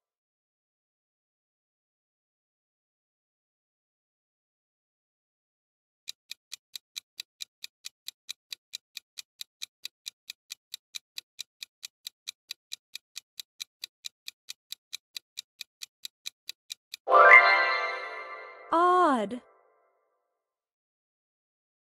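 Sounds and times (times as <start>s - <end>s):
countdown clock ticking: 6.1s - 19.2s
multi-tone sound effect: 17.1s - 19.4s.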